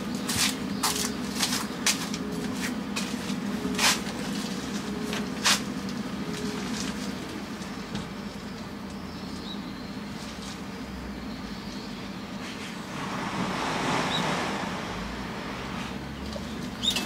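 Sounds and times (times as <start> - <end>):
low hum: 12.8 - 16.6.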